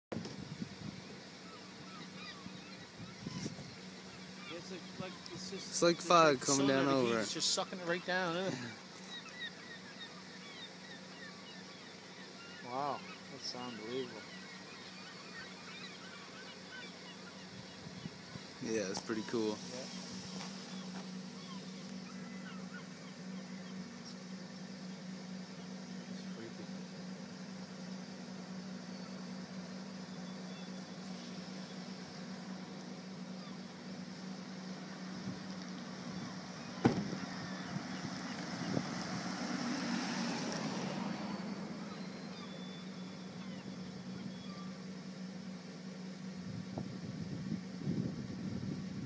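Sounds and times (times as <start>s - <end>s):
motor droning: 0.1s - 49.0s
steady low hum: 0.1s - 49.0s
faint bird chirps: 0.9s - 46.8s
car passing: 37.0s - 42.0s.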